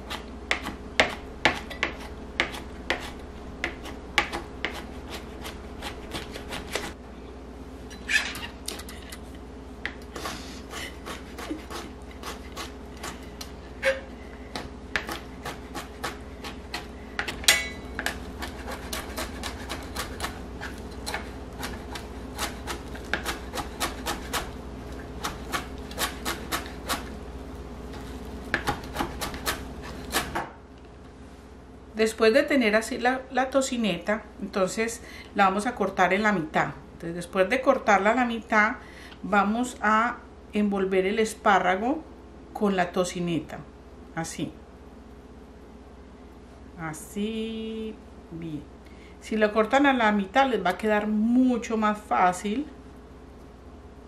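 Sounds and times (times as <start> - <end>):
faint steady hum: 0.0 - 54.0
knife chopping on cutting board: 0.1 - 7.0, 14.6 - 17.4, 18.0 - 24.5, 25.2 - 27.1, 28.5 - 30.6.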